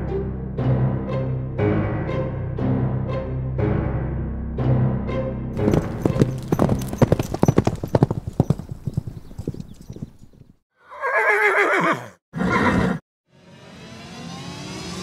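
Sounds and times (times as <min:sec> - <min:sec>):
horse hoofbeats galloping: 0:05.6 - 0:10.6
horse whinnying: 0:05.6 - 0:13.0.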